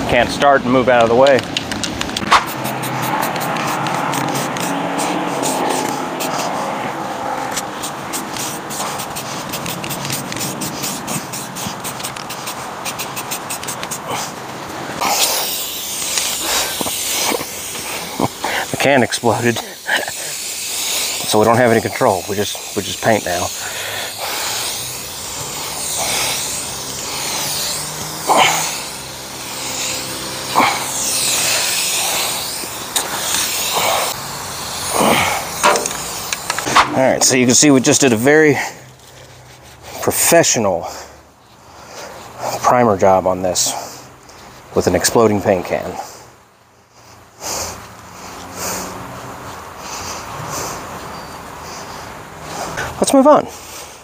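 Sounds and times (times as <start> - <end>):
spray can rattling when shaken: 0.9 - 6.7, 7.4 - 14.4, 15.0 - 38.3.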